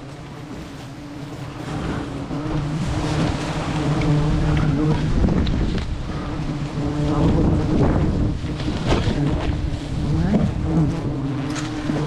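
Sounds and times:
honey bees buzzing: 0.0s - 12.0s
wind rumbling on microphone: 0.0s - 12.0s.

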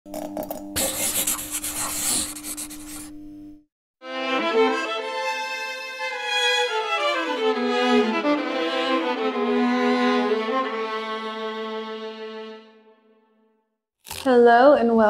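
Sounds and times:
bowed string music: 4.0s - 13.4s.

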